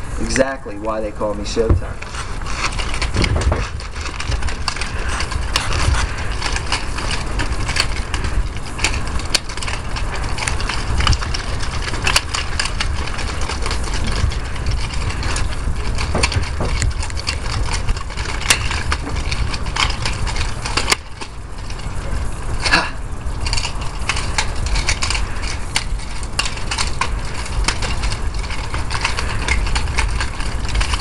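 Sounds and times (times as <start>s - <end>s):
nunchuck chain rattling: 0.2s - 31.0s
nunchuck handles cracking: 1.5s - 31.0s.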